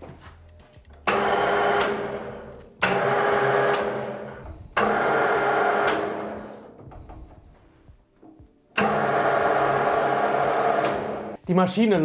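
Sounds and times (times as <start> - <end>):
lathe motor and gearbox running: 1.0 - 7.4, 8.8 - 11.4.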